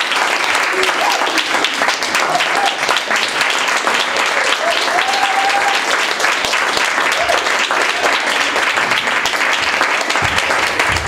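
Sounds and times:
audience applauding: 0.0s - 11.0s
cheering whoops: 0.7s - 3.0s, 4.4s - 6.0s, 7.1s - 8.3s.

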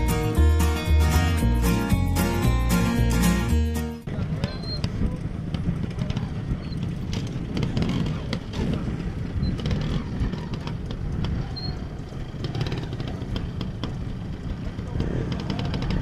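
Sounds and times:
motorcycle engine at low revs: 4.1s - 16.0s.

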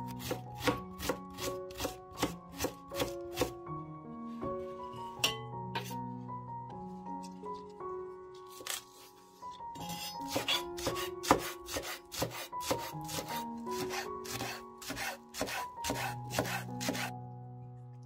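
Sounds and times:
soft background music: 0.0s - 18.0s
knife chopping on cutting board: 0.2s - 3.6s, 9.9s - 17.1s.

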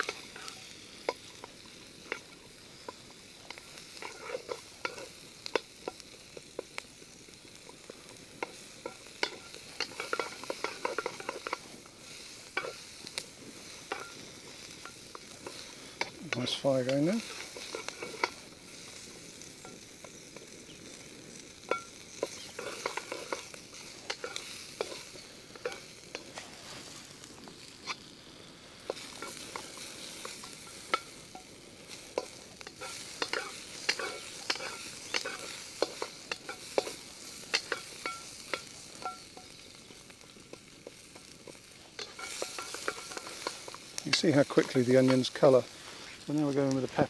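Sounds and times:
onions sizzling in hot oil: 0.0s - 47.0s
wooden spatula scraping a pan: 3.8s - 5.2s, 22.2s - 27.1s, 32.1s - 38.7s, 41.4s - 46.3s.

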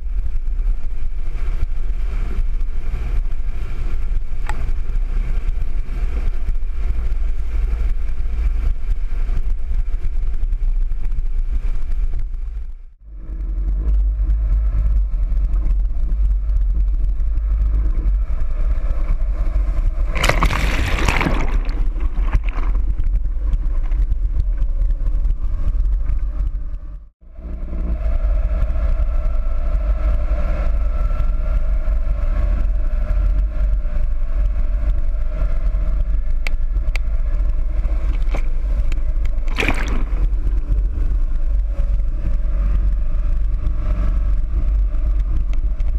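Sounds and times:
vehicle engine running: 0.0s - 45.9s
water rushing and splashing: 20.0s - 23.2s, 38.1s - 40.5s.

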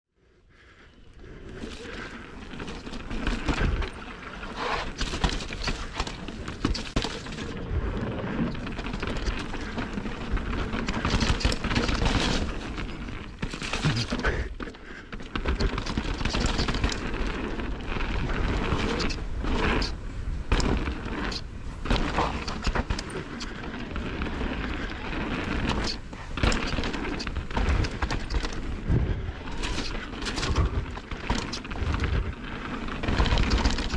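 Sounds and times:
bike knocking and rattling: 1.3s - 33.9s
tyres crunching over dirt and stones: 1.6s - 33.9s
wind rumble on microphone: 16.4s - 33.9s.

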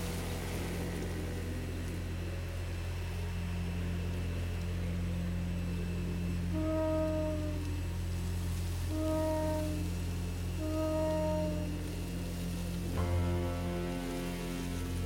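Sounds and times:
low sustained drone: 0.0s - 15.0s
held brass note: 6.5s - 7.8s, 8.9s - 10.0s, 10.6s - 12.1s, 12.9s - 15.0s.

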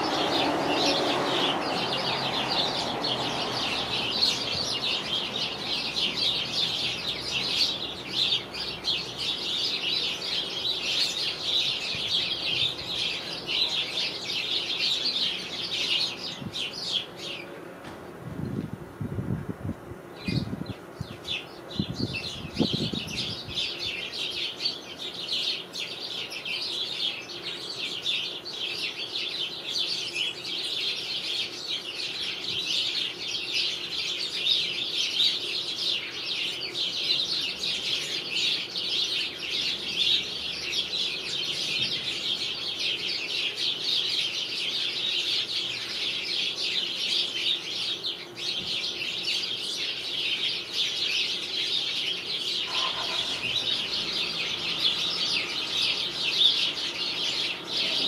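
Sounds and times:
sparrows chirping: 0.0s - 18.7s, 20.0s - 58.0s.

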